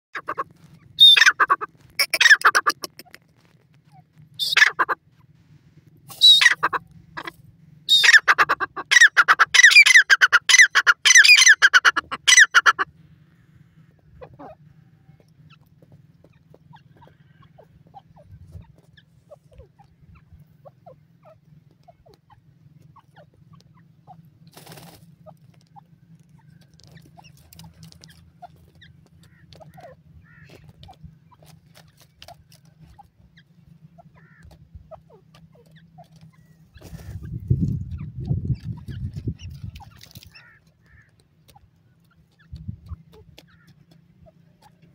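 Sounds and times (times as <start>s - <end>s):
francolin calling: 1.0s - 3.0s, 4.4s - 5.0s, 6.1s - 12.8s
soft rustles: 3.0s - 4.4s.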